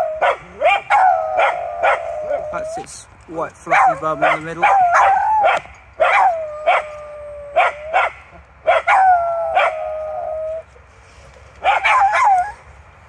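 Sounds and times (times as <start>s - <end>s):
dogs barking and yipping: 0.0s - 3.0s, 3.6s - 10.6s, 11.6s - 12.7s
dogs whining: 0.0s - 3.0s, 3.7s - 8.1s, 11.6s - 12.6s.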